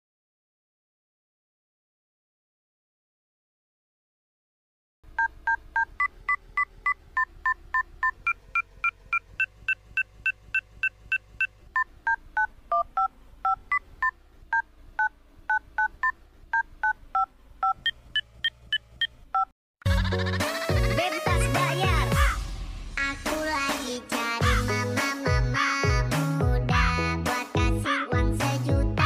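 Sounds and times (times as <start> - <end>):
electronic beeps playing a tune: 5.2 - 19.5.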